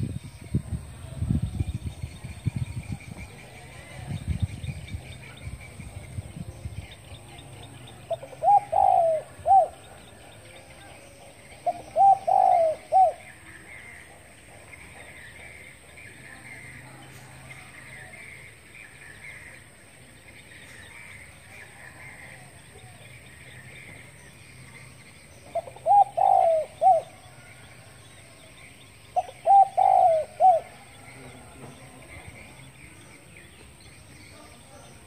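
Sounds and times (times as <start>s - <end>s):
dove cooing: 6.9s - 15.6s, 25.4s - 28.0s, 29.0s - 32.3s.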